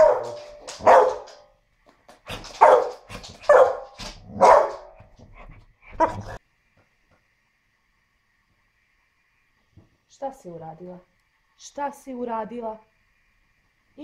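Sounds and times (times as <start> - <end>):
dog barking: 0.0 - 1.4, 2.3 - 5.1, 5.9 - 6.4.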